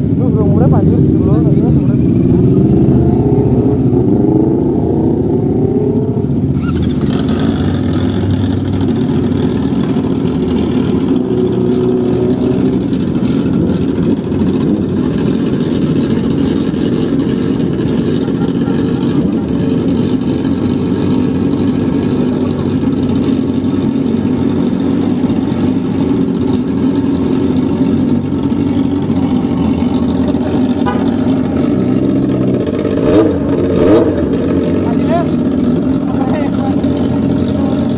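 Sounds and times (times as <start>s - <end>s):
motorcycle engine idling: 0.0s - 37.9s.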